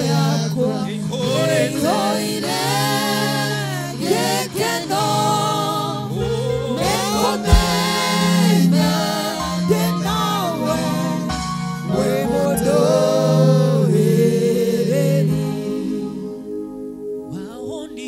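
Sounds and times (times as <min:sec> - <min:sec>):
voices singing worship song: 0:00.0 - 0:18.0
low thump: 0:07.5 - 0:07.8
sustained low chords: 0:07.5 - 0:08.0.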